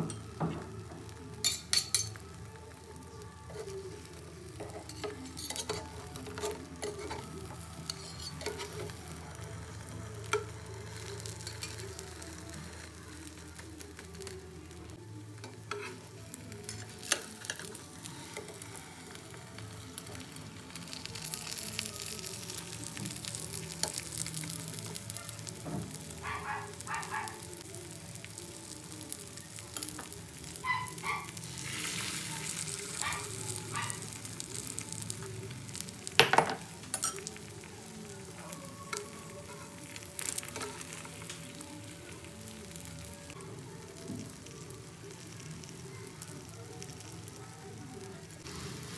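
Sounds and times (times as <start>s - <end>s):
egg sizzling in frying pan: 15.5s - 47.4s, 48.0s - 48.9s.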